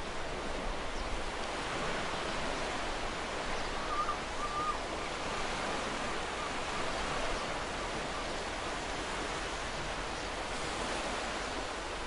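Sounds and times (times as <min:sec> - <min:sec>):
ocean surf on sand: 0:00.0 - 0:12.0
faint bird call: 0:03.6 - 0:04.8.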